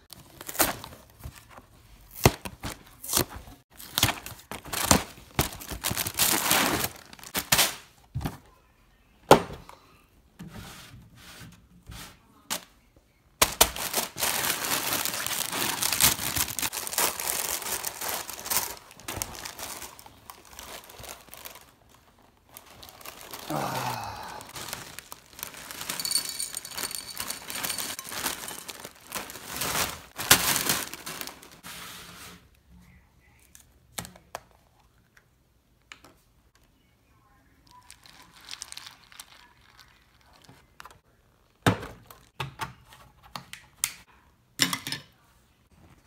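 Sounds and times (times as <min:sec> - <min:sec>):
plastic bag crinkling: 0:03.8 - 0:07.5, 0:13.5 - 0:31.6, 0:37.6 - 0:40.8.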